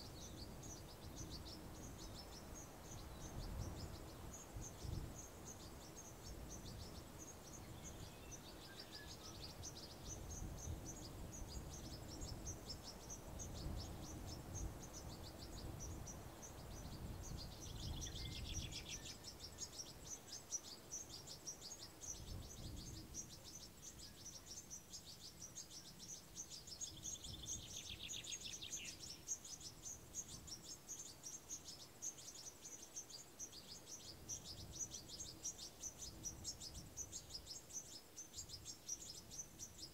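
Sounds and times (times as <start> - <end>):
low wind rumble: 0.0 - 20.1, 21.8 - 24.3
insects chirping rapidly: 0.0 - 39.9.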